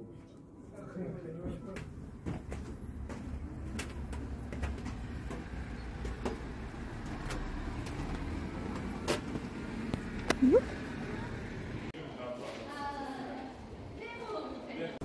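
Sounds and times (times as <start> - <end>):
road traffic rumble: 2.8 - 12.0.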